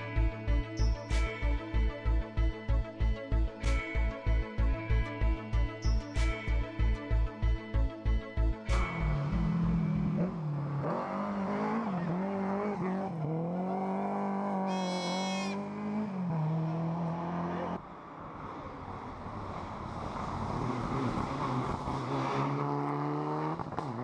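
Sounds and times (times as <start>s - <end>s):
rally car engine revving: 8.7s - 17.8s, 19.6s - 24.0s
approaching rally car engine: 8.8s - 24.0s
high-pitched squeal: 14.6s - 15.8s.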